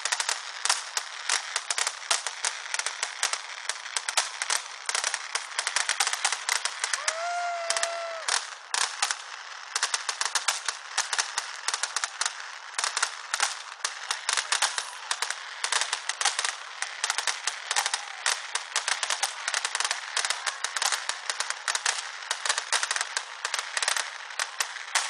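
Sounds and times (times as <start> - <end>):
fireworks crackling and popping: 0.0 - 25.0
firework whistle: 6.8 - 8.6, 17.1 - 19.6.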